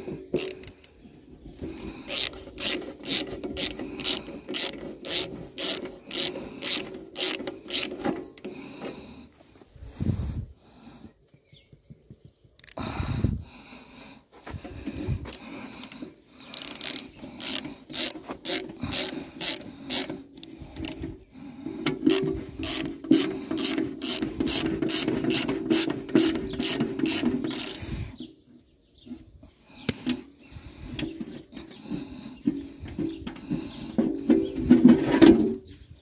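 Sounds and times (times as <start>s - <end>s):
ratchet wrench clicking: 0.4s - 0.8s, 1.8s - 8.0s, 12.6s - 12.8s, 15.3s - 21.0s, 22.1s - 27.9s.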